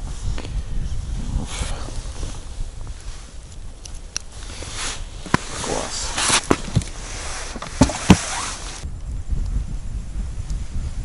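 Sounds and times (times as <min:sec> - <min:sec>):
rustling close to microphone: 0:00.0 - 0:08.9.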